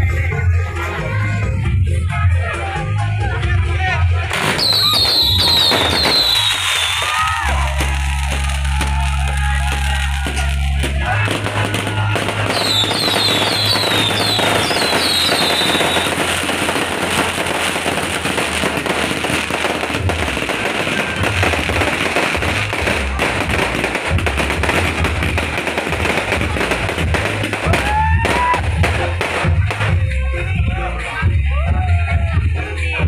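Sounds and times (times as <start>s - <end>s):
bass-heavy music: 0.0s - 33.0s
firecrackers crackling and popping: 4.2s - 31.1s
high whistling chirps: 12.6s - 16.1s.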